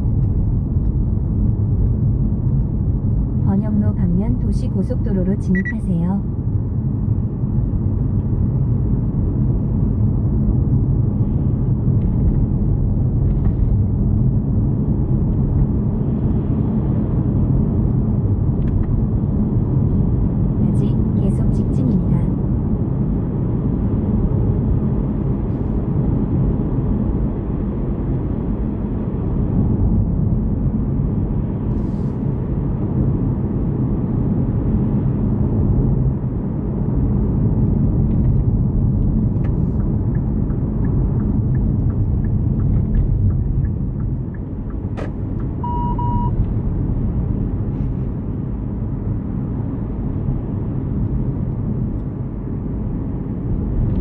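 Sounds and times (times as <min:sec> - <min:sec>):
road and tyre rumble: 0:00.0 - 0:54.0
short single beep: 0:45.6 - 0:46.4.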